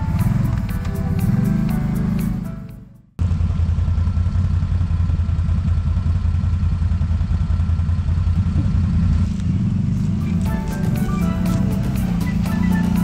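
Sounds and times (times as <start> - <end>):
background music: 0.0 - 3.2, 10.2 - 13.0
atv engine idling: 0.0 - 13.0.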